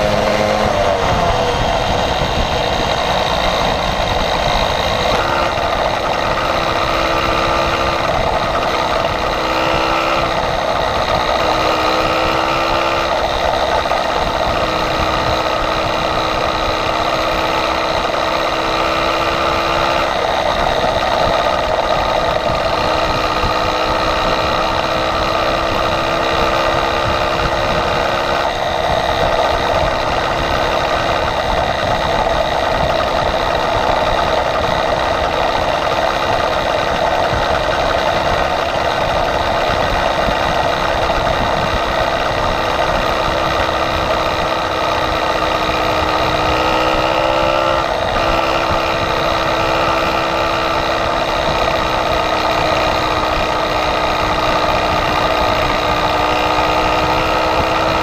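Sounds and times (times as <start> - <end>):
small motorbike engine running: 0.0 - 58.0
wind noise on microphone: 0.0 - 58.0.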